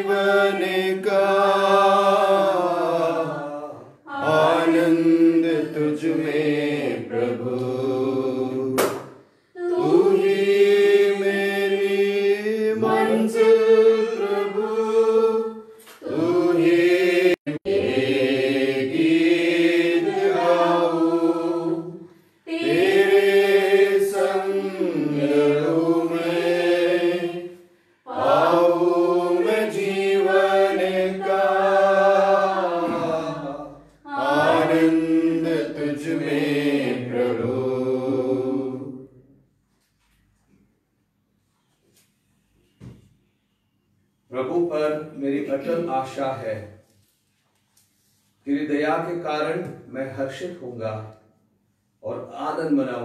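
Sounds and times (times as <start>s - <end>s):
person singing devotional hymn: 0.0s - 39.2s.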